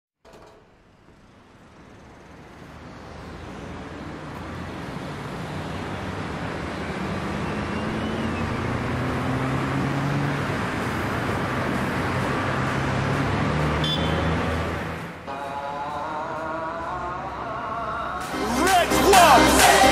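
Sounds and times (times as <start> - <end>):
vehicle engine running: 0.8 - 15.2.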